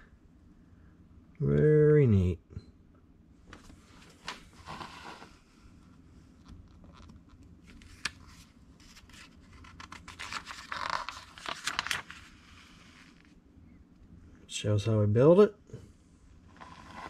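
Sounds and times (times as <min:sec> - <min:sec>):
page being turned: 0:04.0 - 0:05.4, 0:06.9 - 0:13.3
magazine pages rustling: 0:07.7 - 0:13.4.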